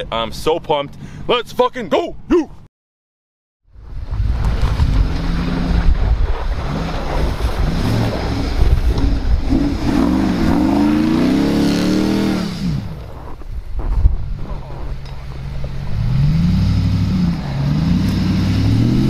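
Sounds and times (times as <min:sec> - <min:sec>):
truck engine rumbling and revving: 0:03.7 - 0:19.0.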